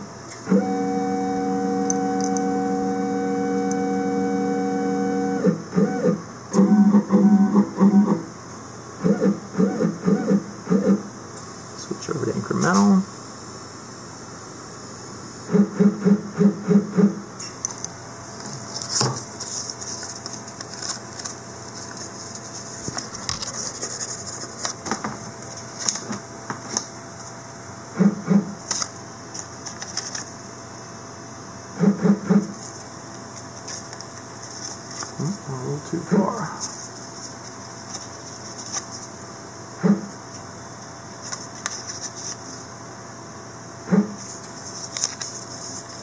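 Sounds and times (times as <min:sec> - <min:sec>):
stepper motors buzzing: 0:00.4 - 0:08.2, 0:09.0 - 0:11.1
paper rustling: 0:18.4 - 0:26.2, 0:28.7 - 0:30.3, 0:33.4 - 0:35.2, 0:36.6 - 0:39.1, 0:41.2 - 0:42.6, 0:44.2 - 0:46.0.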